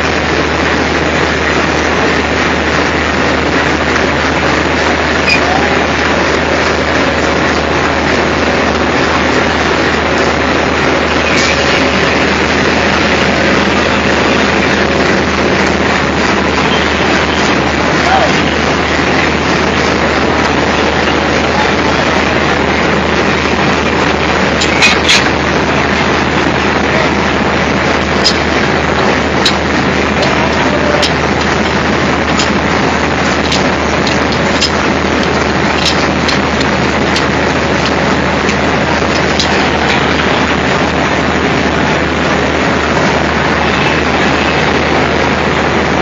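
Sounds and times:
model train rolling on track: 0.0 - 46.0
sharp clicks: 33.3 - 40.0.

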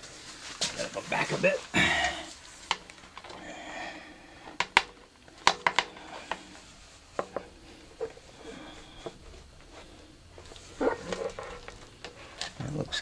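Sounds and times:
magnetic sheet clicking and tapping: 4.5 - 6.5.

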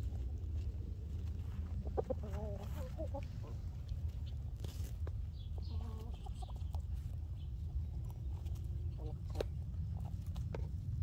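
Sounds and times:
steady low rumble: 0.0 - 11.0
chickens clucking: 1.1 - 10.7.

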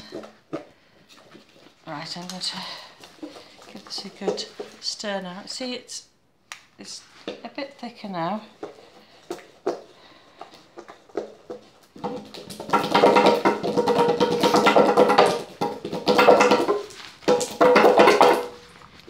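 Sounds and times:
pestle tapping bowl: 8.6 - 18.6
pestle scraping with ringing tone: 10.7 - 19.0.

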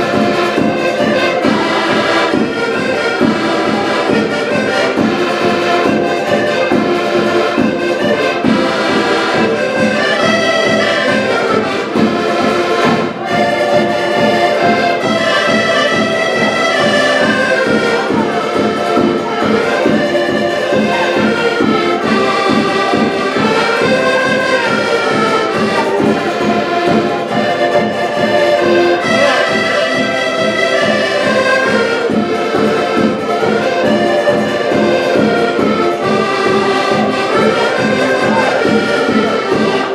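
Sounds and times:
accordions playing folk music: 0.0 - 39.9.

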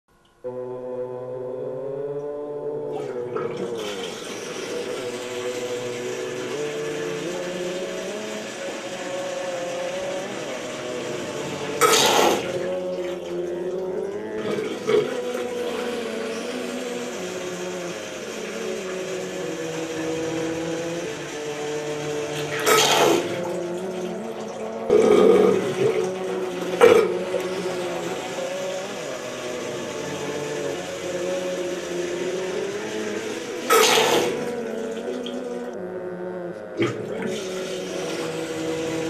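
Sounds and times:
water running in washbasin: 2.2 - 35.8, 36.8 - 39.0
loud rushes of water: 3.7 - 13.8.

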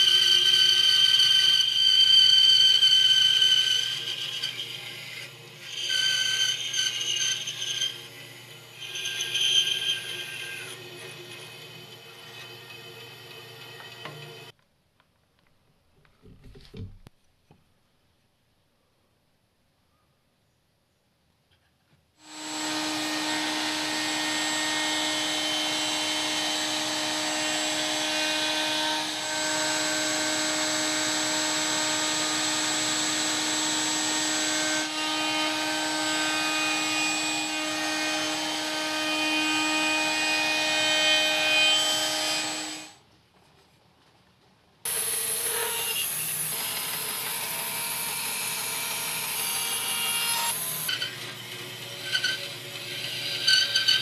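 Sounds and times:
electric power tool running: 22.2 - 35.0.

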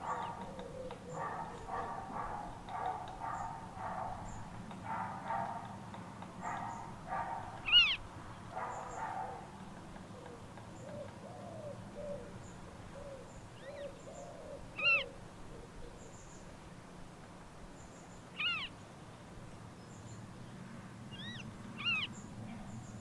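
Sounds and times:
high bird calls: 0.0 - 4.5, 6.4 - 9.4, 13.0 - 15.2, 18.3 - 18.8, 21.1 - 23.0
harsh bird calls: 0.0 - 4.6, 6.4 - 9.5, 10.2 - 16.4, 18.3 - 18.8, 21.1 - 23.0.

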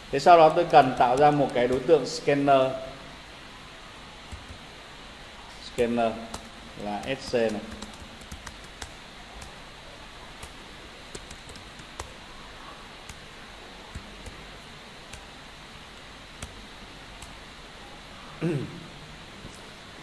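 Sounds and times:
keyboard typing: 0.3 - 2.0, 4.3 - 4.6, 5.8 - 9.7, 10.3 - 12.2, 13.0 - 17.4.

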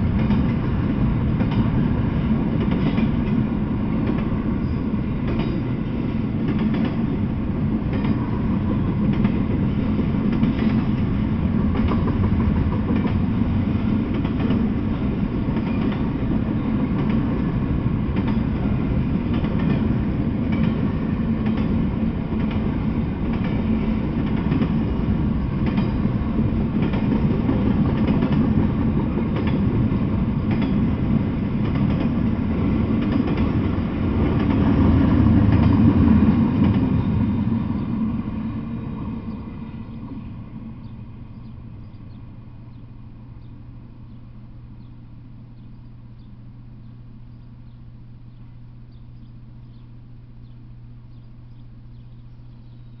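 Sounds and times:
freight train rumbling past: 0.0 - 53.0
wheels clicking over rails: 11.7 - 37.2.

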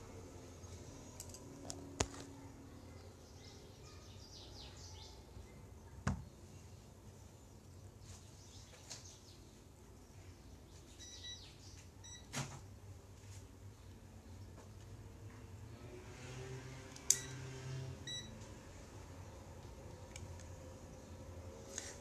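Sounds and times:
faint bird chirps: 10.7 - 12.2.

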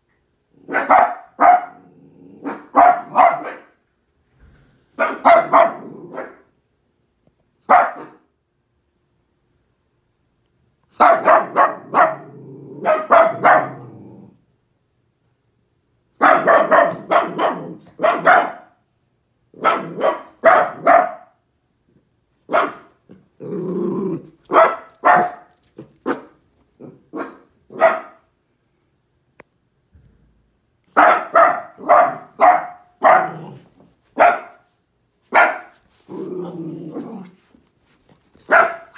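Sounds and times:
dogs barking: 0.6 - 3.8, 5.0 - 6.4, 7.7 - 8.2, 11.0 - 13.9, 16.2 - 18.8, 19.6 - 21.3, 22.5 - 23.0, 24.5 - 26.4, 27.1 - 28.2, 30.9 - 33.6, 34.2 - 34.7, 35.3 - 35.8, 38.5 - 38.9
dog growling: 1.8 - 2.6, 5.8 - 6.2, 12.1 - 13.0, 13.6 - 14.4, 23.1 - 24.5, 33.2 - 33.7, 36.0 - 37.5.

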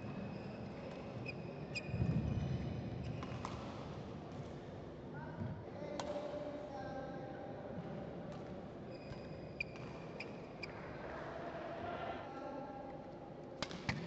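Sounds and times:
voices in a hall: 3.7 - 14.0
shoes squeaking on court: 8.9 - 10.8.

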